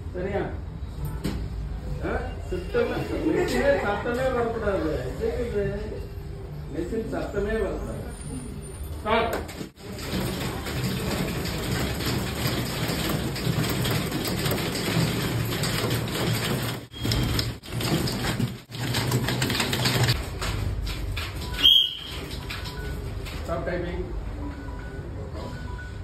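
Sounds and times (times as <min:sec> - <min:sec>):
typewriters clattering: 0:09.3 - 0:23.6.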